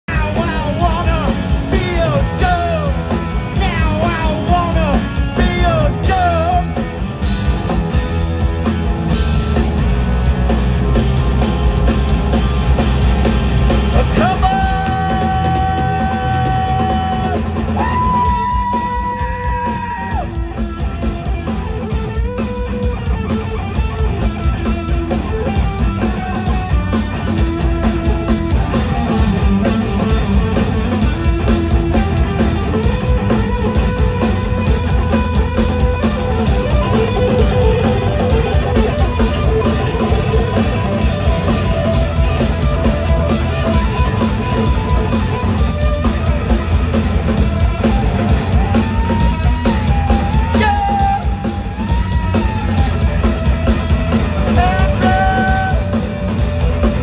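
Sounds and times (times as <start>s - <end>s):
drum kit: 0.0s - 57.0s
electric bass: 0.0s - 57.0s
person singing: 0.1s - 6.8s, 14.0s - 20.2s, 50.4s - 51.7s, 54.4s - 56.0s
electric guitar: 0.1s - 57.0s.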